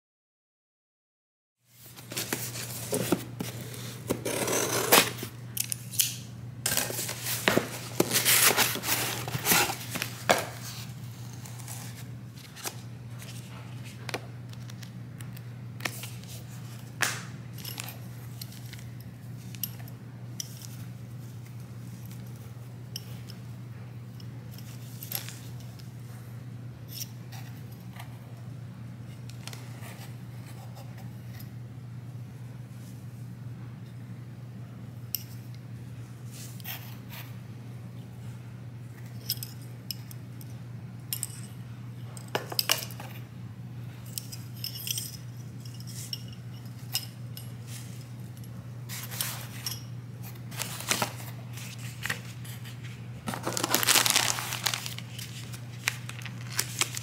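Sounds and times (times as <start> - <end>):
steady low hum: 1.6 - 57.0
packaging rustling and crinkling: 1.8 - 4.2, 6.7 - 13.5, 50.5 - 57.0.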